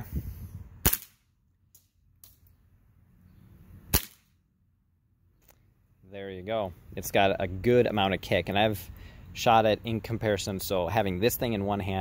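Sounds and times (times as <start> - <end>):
airsoft pistol shot: 0.8 - 1.2, 3.9 - 4.3.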